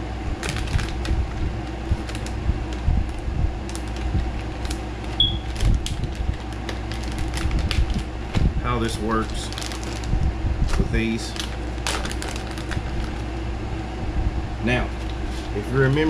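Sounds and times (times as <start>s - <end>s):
steady low hum: 0.0s - 16.0s
plastic package crinkling: 0.4s - 8.1s, 9.1s - 13.3s.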